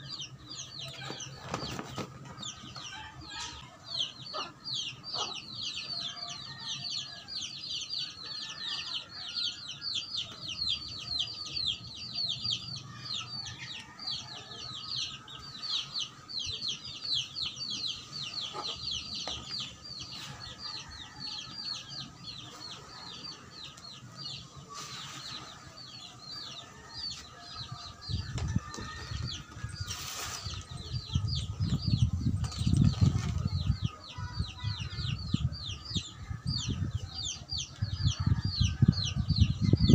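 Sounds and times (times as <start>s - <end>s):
chicks peeping: 0.0s - 39.9s
shovel scraping soil: 29.9s - 30.6s.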